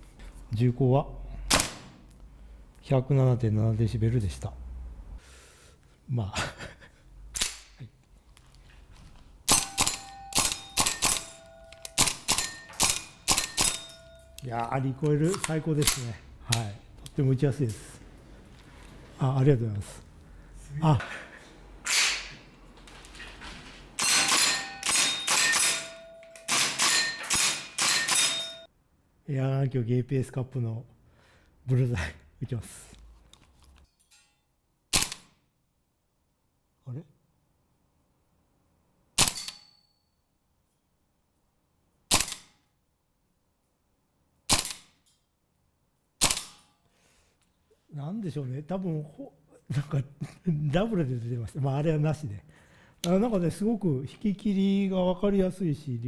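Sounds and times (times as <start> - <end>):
airsoft rifle shots: 9.5 - 11.4, 12.0 - 13.9, 24.0 - 28.6, 34.9 - 35.3
metallic ring of steel plate: 24.0 - 28.7.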